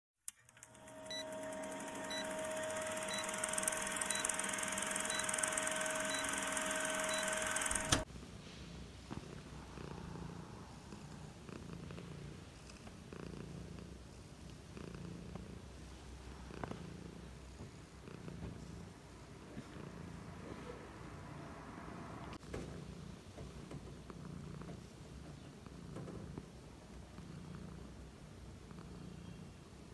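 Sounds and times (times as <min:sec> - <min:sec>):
short beeps: 0:03.0 - 0:08.0
cat purring: 0:08.0 - 0:29.9.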